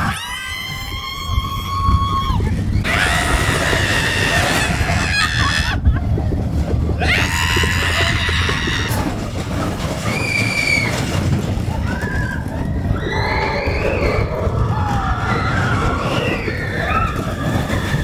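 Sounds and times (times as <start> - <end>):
riders screaming: 0.0 - 5.9, 7.0 - 9.3, 10.0 - 18.0
roller coaster rumbling on track: 0.0 - 18.0.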